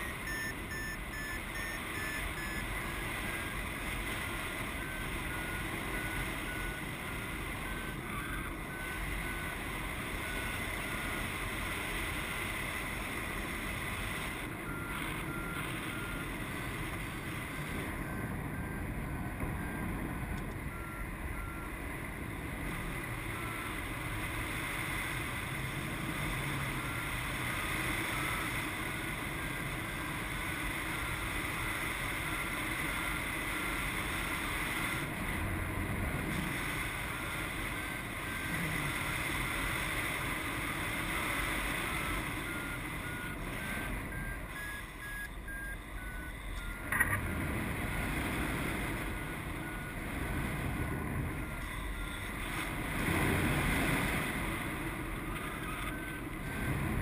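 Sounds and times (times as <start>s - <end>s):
variometer beeps: 0.0s - 22.0s, 22.7s - 24.0s, 24.9s - 35.2s, 36.4s - 57.0s.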